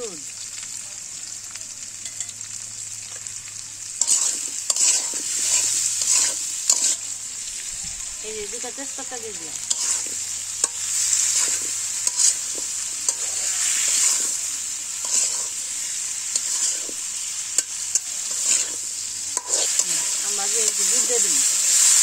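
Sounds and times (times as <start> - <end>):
fruit sizzling in oil: 0.0 - 22.0
metal spatula scraping a pan: 4.0 - 7.2, 9.6 - 22.0.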